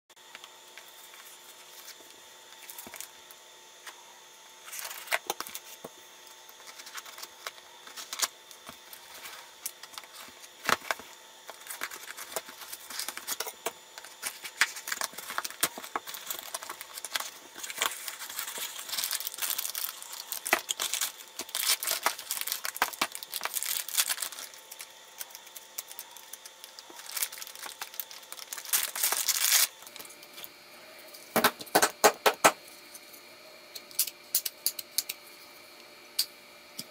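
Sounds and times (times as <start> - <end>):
plastic bags crinkling: 6.5 - 30.5
tape and cardboard tearing: 26.7 - 29.8.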